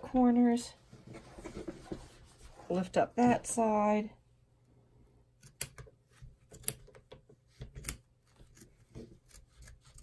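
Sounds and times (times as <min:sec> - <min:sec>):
scissors snipping fabric: 0:05.4 - 0:10.0.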